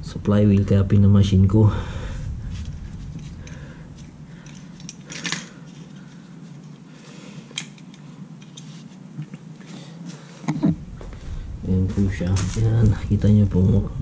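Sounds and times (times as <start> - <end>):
metallic clicks and rattles: 3.2 - 5.6, 7.5 - 8.7.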